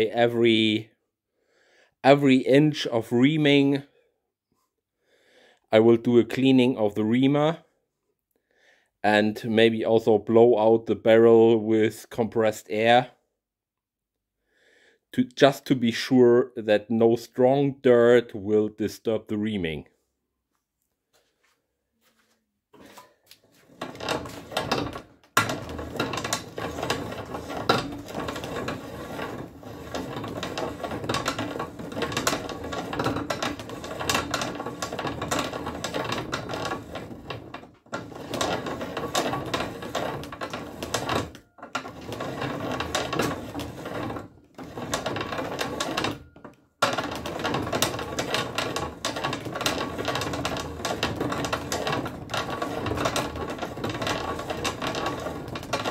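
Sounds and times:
reamer scraping inside barrel: 0:22.8 - 0:55.9.

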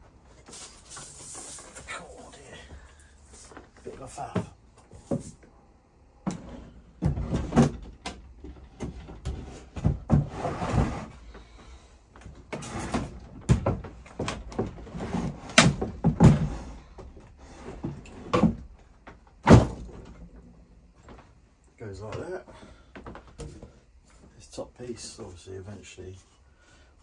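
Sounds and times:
wooden board scraping: 0:08.6 - 0:11.2.

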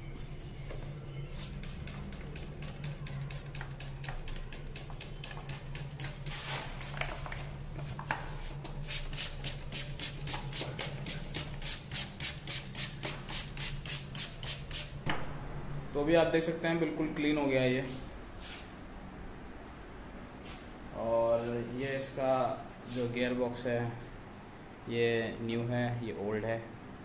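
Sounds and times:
low steady hum: 0:00.0 - 0:11.8, 0:13.9 - 0:27.0.

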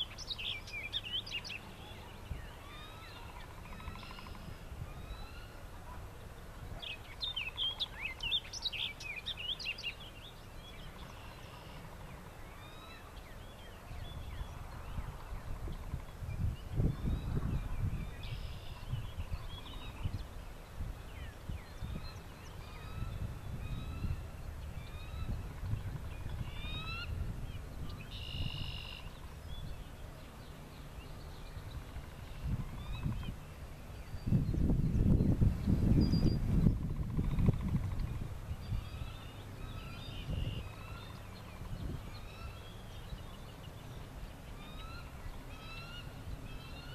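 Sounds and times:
wind rumbling on microphone: 0:00.0 - 0:11.2, 0:11.8 - 0:46.9.

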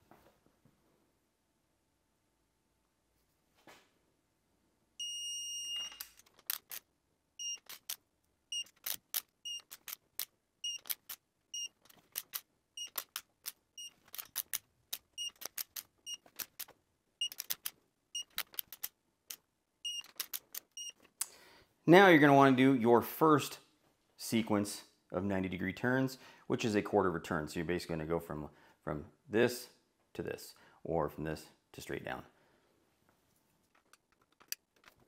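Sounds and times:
steady beep: 0:05.0 - 0:06.0.

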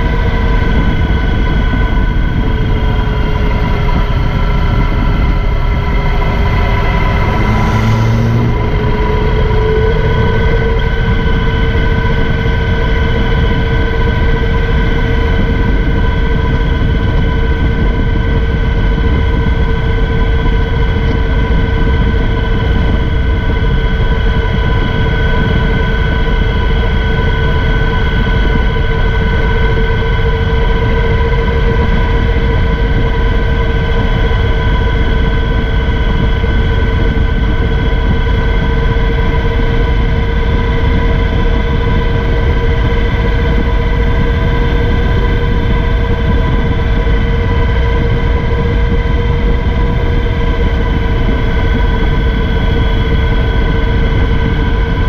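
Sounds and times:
wind and road noise: 0:00.0 - 0:55.0
steady whistle: 0:03.0 - 0:14.3.

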